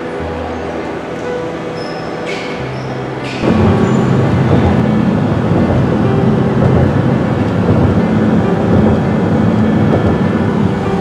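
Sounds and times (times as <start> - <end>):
van engine and road noise: 3.1 - 11.0
low hum: 3.4 - 11.0.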